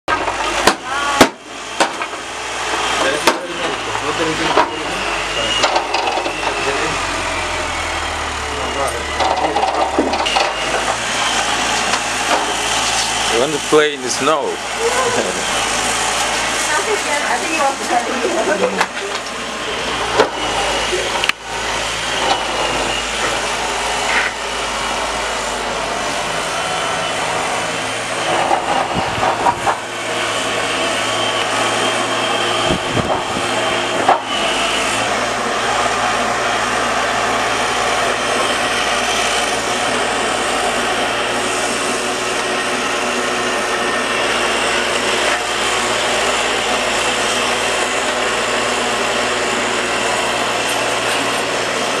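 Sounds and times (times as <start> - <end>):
snow-clearing machinery engine drone: 0.1 - 52.0.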